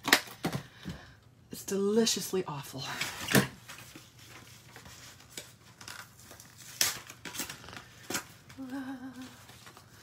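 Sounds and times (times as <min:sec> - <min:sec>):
paper crinkle: 0:03.6 - 0:10.0.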